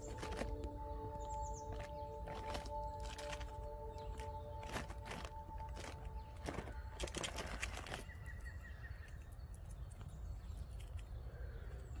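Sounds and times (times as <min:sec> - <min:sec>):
squirrel rustling in fabric backpack: 0:00.0 - 0:08.6.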